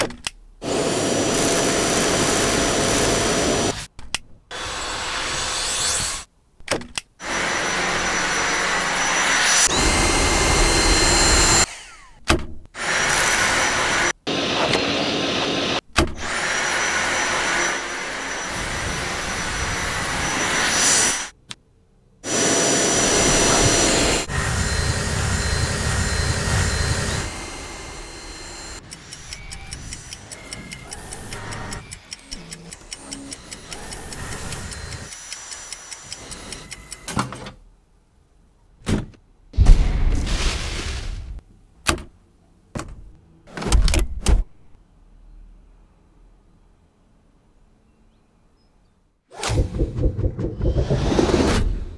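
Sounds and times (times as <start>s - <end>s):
vacuum cleaner motor whining: 0.7s - 3.7s, 7.2s - 12.2s, 12.8s - 21.0s, 22.3s - 29.7s.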